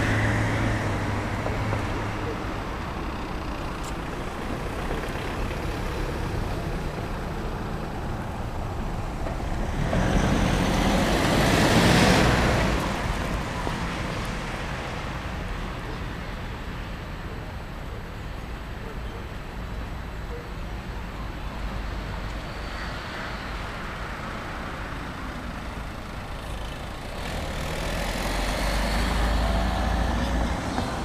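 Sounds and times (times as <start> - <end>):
street traffic noise: 0.0 - 31.0
vehicle passing close by: 9.1 - 14.4, 27.0 - 31.0.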